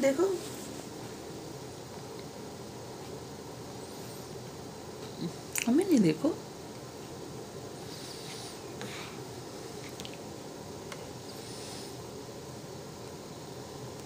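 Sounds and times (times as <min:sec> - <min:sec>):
faint breathy sounds: 0:07.8 - 0:09.3, 0:11.2 - 0:12.1.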